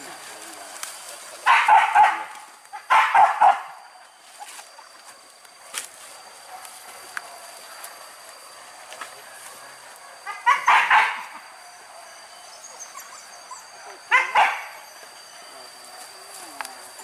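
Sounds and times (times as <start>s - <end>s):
dogs barking: 1.4s - 4.0s, 9.5s - 15.0s.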